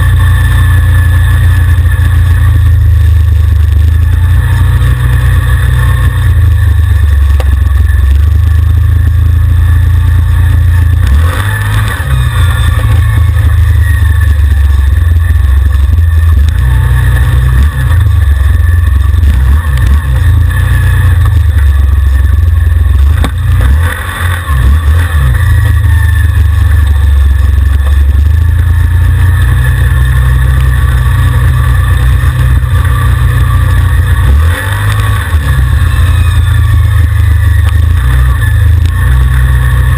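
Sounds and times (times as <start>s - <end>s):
quad bike engine under throttle: 0.0s - 39.9s.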